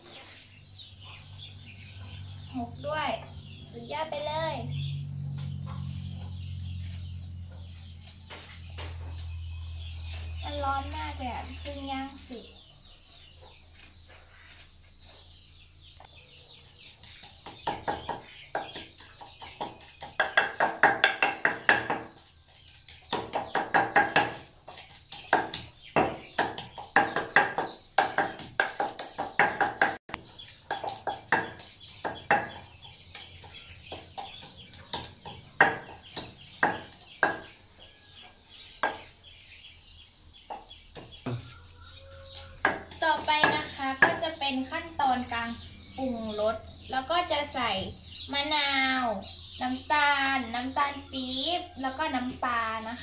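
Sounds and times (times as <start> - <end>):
wooden pestle pounding in stone mortar: 17.0 - 30.0, 30.6 - 37.5, 42.5 - 44.3.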